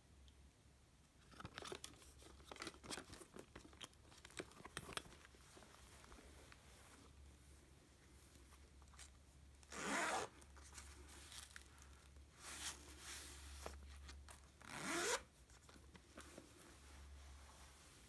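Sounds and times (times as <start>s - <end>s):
zipper being pulled: 9.7s - 10.4s, 14.6s - 15.3s.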